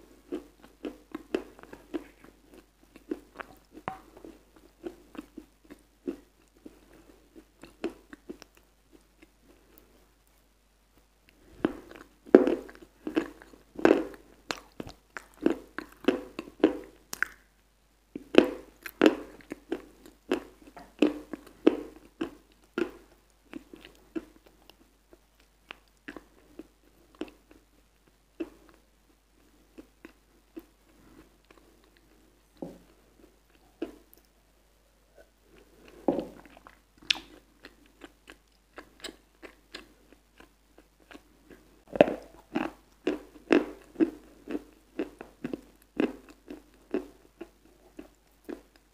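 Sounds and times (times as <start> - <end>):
wet mouth smacking: 36.4 - 37.4.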